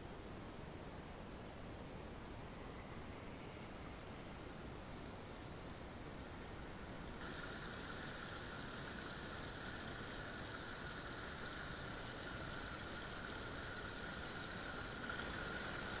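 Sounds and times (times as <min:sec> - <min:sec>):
stream running over stones: 0:07.2 - 0:16.0.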